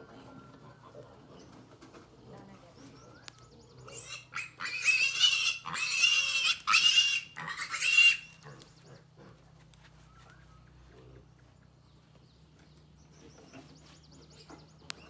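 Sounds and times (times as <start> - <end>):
piglet squealing: 3.9 - 8.4.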